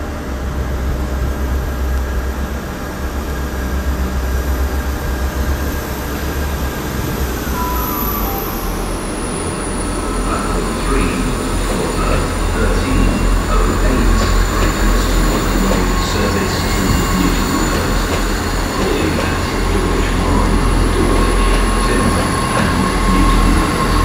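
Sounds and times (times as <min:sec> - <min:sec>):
diesel train engines rumbling: 0:00.0 - 0:24.0
faint tone: 0:07.4 - 0:24.0.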